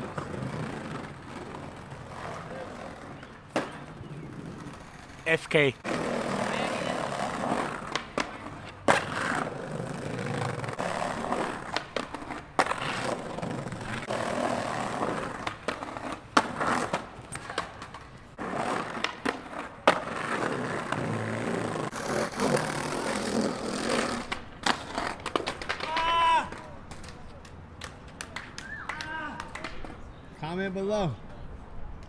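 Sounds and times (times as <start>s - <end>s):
skateboard wheels rolling on stone: 0.0s - 28.7s
skateboard clacking on ground: 5.8s - 30.1s.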